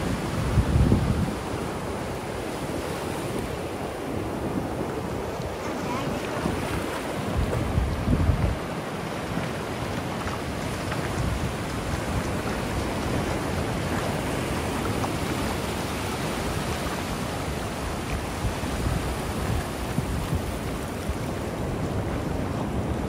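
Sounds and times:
ocean surf breaking: 0.0 - 23.0
wind on microphone: 0.0 - 23.0.

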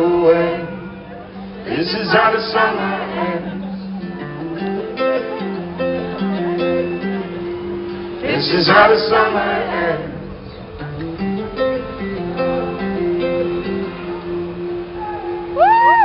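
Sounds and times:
acoustic guitars strummed: 0.0 - 15.8
keyboard notes: 0.0 - 16.0
loud voices near microphone: 0.0 - 16.0.

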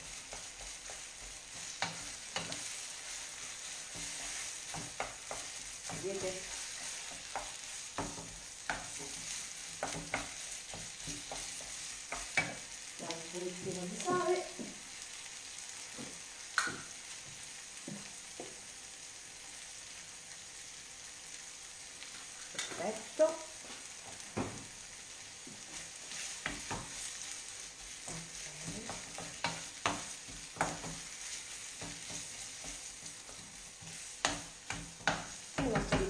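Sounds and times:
wooden spoon scraping a pan: 0.0 - 12.7, 25.4 - 36.0
filling sizzling in a frying pan: 0.0 - 36.0.

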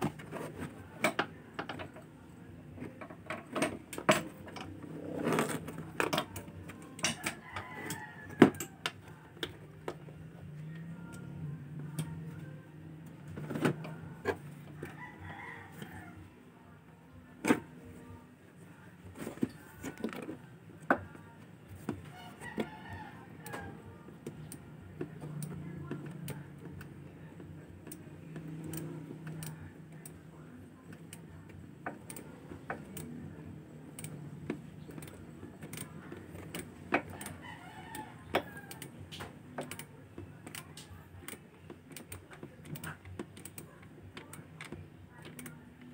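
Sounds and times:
tools and parts clicking: 0.0 - 2.1, 2.8 - 10.1, 27.8 - 30.2, 33.9 - 45.9
rooster crowing: 7.2 - 8.8, 14.8 - 16.2, 37.2 - 38.8.

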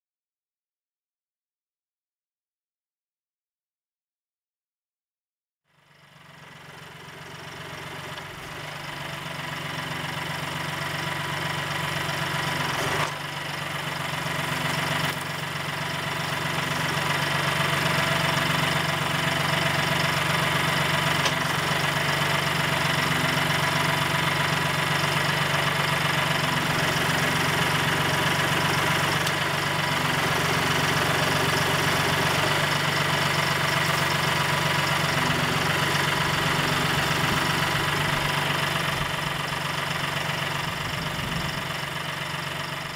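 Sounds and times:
tractor diesel engine running: 5.7 - 42.9.

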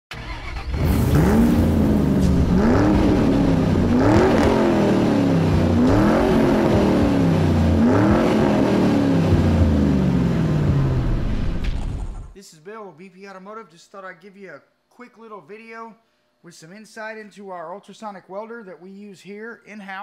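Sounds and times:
car engine revving: 0.1 - 12.1.

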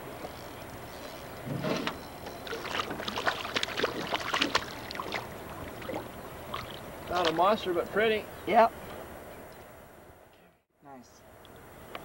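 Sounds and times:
fish splashing in water: 2.3 - 7.4.

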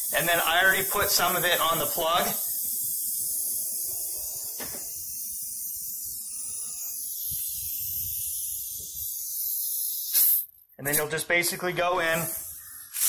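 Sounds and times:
steady high hiss: 0.0 - 13.0.

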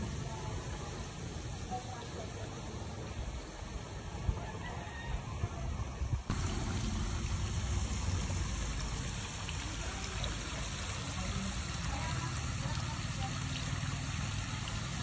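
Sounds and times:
running water rushing: 6.3 - 15.0.

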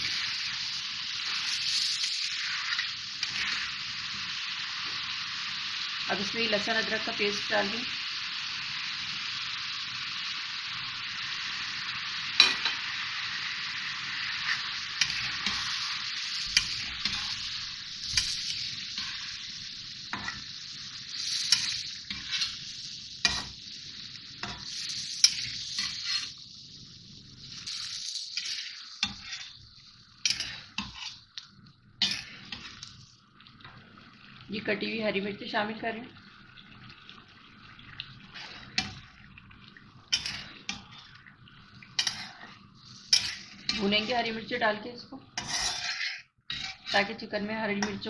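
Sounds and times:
chicken frying in hot oil: 0.0 - 48.0
spatula scraping and knocking pan: 14.4 - 20.5, 21.2 - 22.6, 23.2 - 23.6, 24.4 - 26.4, 27.6 - 29.6, 30.2 - 31.2, 32.0 - 32.9, 40.1 - 41.1, 42.0 - 44.2, 45.4 - 47.1.

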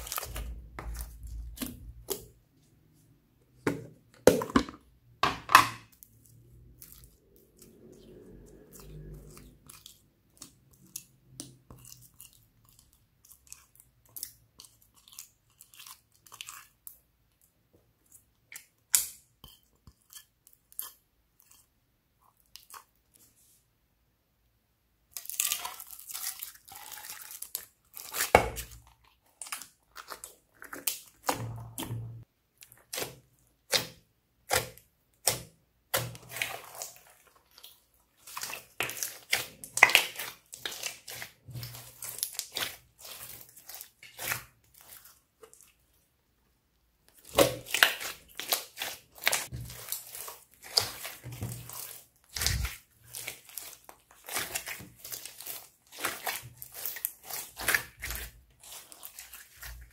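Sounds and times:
slime squelching and popping: 0.0 - 2.4, 25.1 - 45.9, 47.0 - 59.9.

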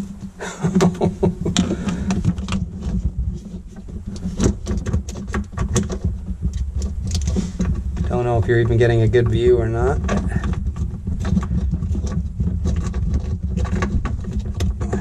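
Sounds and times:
hands clicking and tapping fittings: 0.0 - 3.0, 3.7 - 15.0
steady low hum: 0.0 - 15.0.

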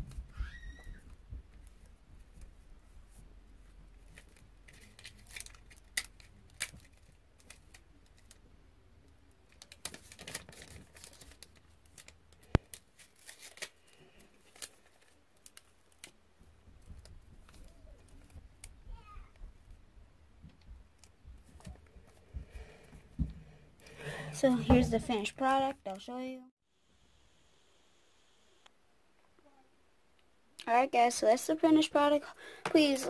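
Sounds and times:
paper rustling: 9.5 - 16.2.

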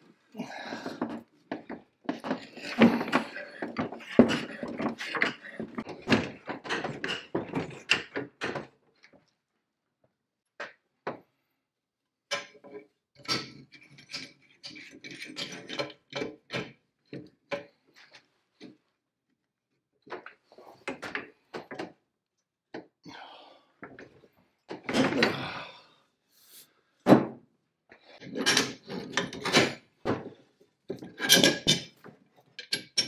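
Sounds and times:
metal chain clicks and knocks: 31.0 - 32.0, 32.6 - 33.0.

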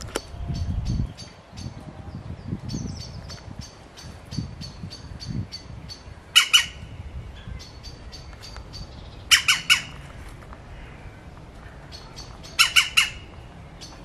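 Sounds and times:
birds calling short high notes: 2.7 - 10.0, 11.9 - 14.0
bird harsh squawks: 6.3 - 8.0, 9.3 - 10.1, 10.7 - 13.3.

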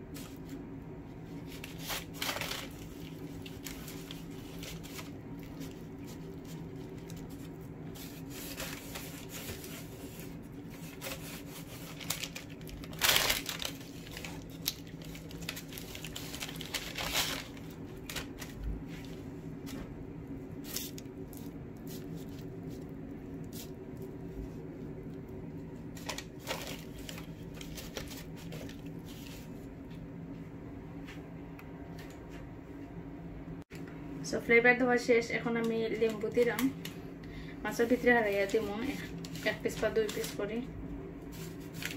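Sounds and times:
steady low hum: 0.0 - 41.9
paper crinkling: 1.3 - 19.2, 25.9 - 29.5, 37.8 - 40.5, 41.3 - 41.9.

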